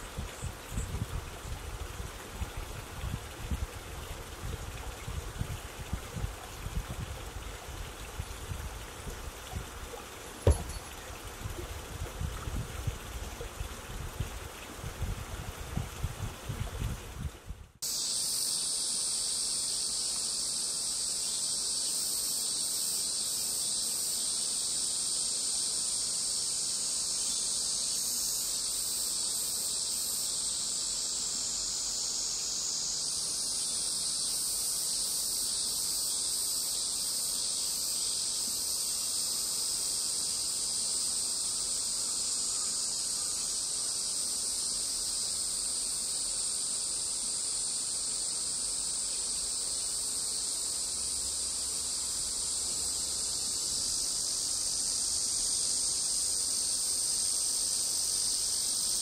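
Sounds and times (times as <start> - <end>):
insects droning: 0.0 - 59.0.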